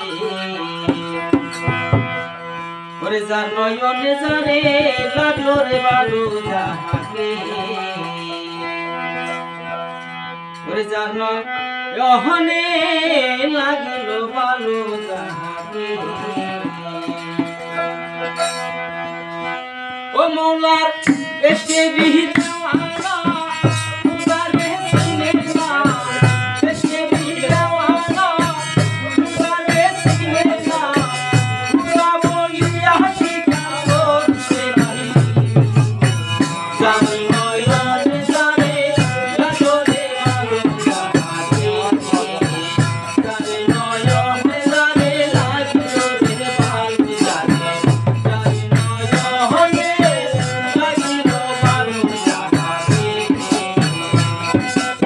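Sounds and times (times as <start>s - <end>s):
harmonium: 0.0s - 55.0s
rattling percussion: 0.1s - 2.6s, 4.1s - 10.7s, 14.6s - 19.5s, 21.0s - 55.0s
men singing: 3.0s - 9.2s, 12.0s - 17.8s, 20.2s - 55.0s.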